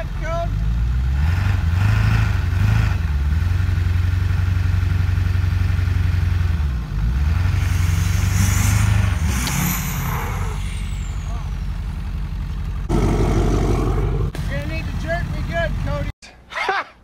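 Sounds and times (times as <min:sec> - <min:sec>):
diesel engine running under load: 0:00.0 - 0:16.1.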